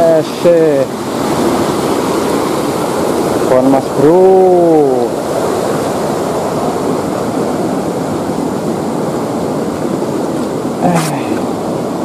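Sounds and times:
river rushing over rocks: 0.0s - 12.0s
man exclaiming: 10.8s - 11.4s.

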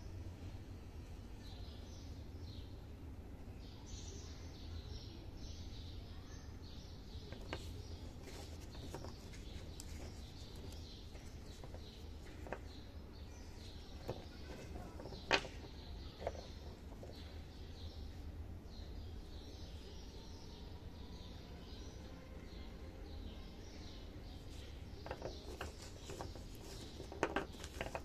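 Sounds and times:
low steady hum: 0.0s - 28.0s
clay pieces clicking together: 25.0s - 28.0s.

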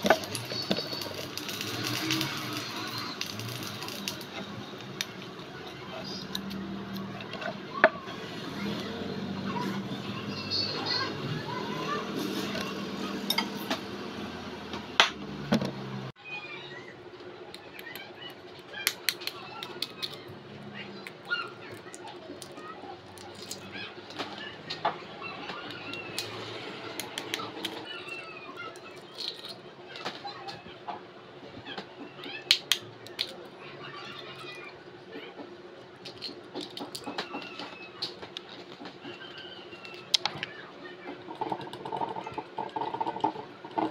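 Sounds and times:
eggshells cracking by hand: 18.8s - 20.3s, 21.0s - 23.7s, 32.4s - 33.4s.

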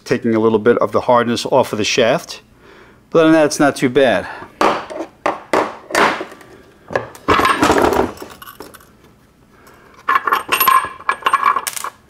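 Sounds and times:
metal gears clinking: 10.1s - 12.0s.

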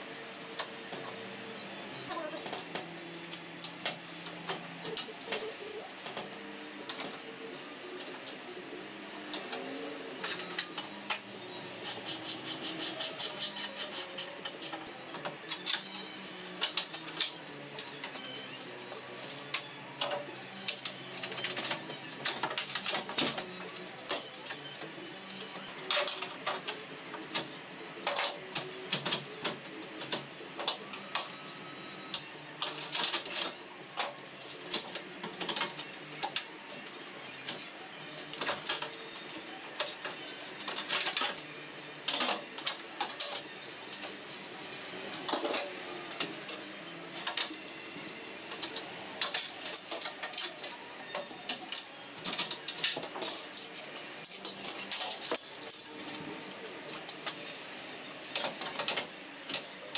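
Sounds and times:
hand tools clicking and rattling: 48.6s - 56.2s.

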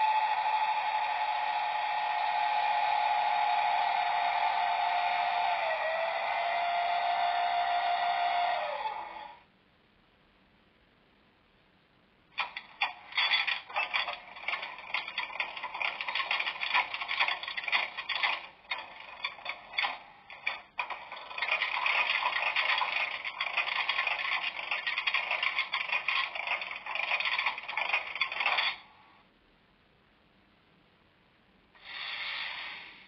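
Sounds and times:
model locomotive clattering noise: 12.4s - 29.0s.

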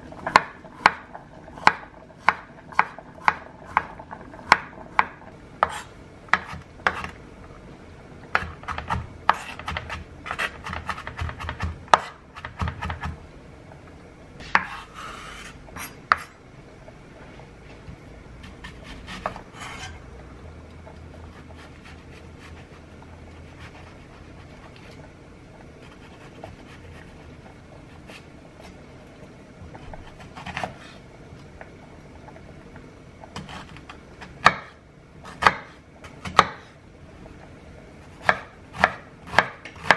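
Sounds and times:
knife chopping on wooden board: 8.4s - 13.2s, 34.3s - 36.6s, 38.2s - 39.9s.

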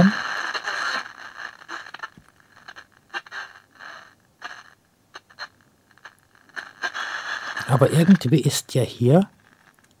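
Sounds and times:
radio tuning clicks: 0.0s - 3.3s
faint radio sound snatches: 0.0s - 10.0s.

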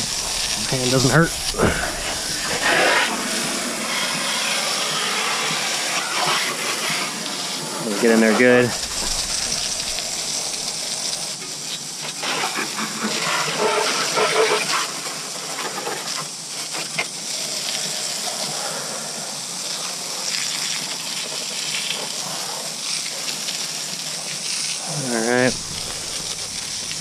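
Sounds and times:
water splashing: 0.0s - 4.9s, 5.5s - 11.4s, 24.8s - 27.0s
water jet spraying: 0.0s - 27.0s.

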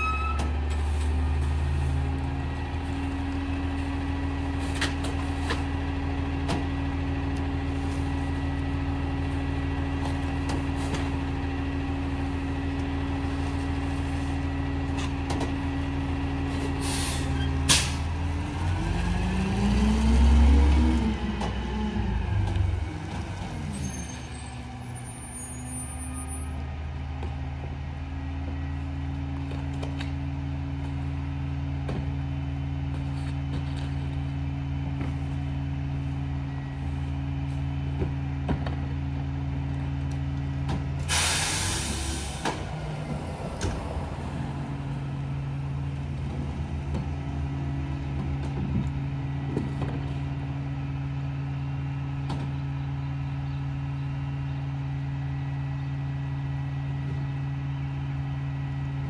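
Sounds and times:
air brake hiss: 16.8s - 18.0s, 41.1s - 42.5s.

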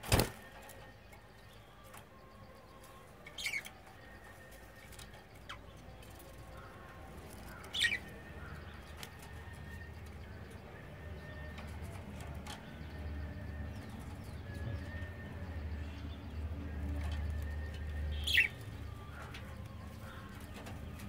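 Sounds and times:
bird wings fluttering: 0.0s - 0.5s.

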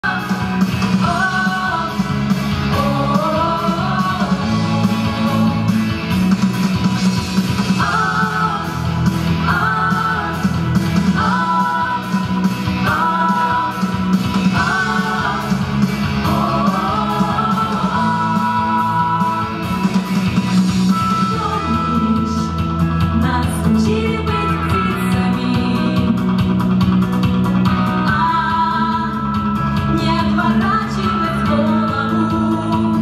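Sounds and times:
mixed vocal ensemble singing: 0.0s - 6.2s, 7.0s - 22.5s
amplified instrumental accompaniment: 0.0s - 33.0s.

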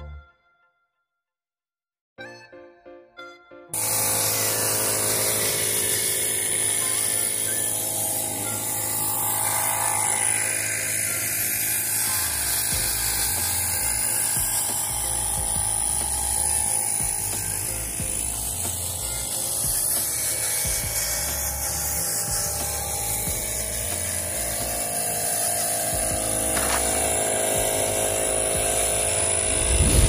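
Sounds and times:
low hum: 3.8s - 19.3s, 26.2s - 30.0s
spray gun hissing: 3.8s - 30.0s.

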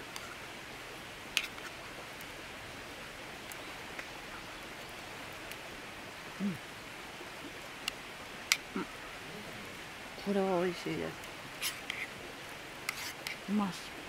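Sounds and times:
steady hiss: 0.0s - 14.0s
person humming mm: 6.4s - 6.6s.

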